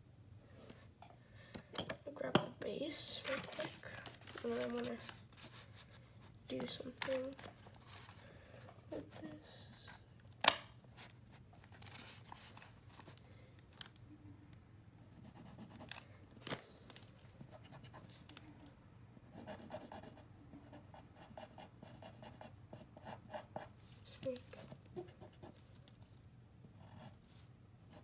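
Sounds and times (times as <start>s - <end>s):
pencil scratching on paper: 15.0s - 16.0s, 19.3s - 23.8s, 26.8s - 27.2s.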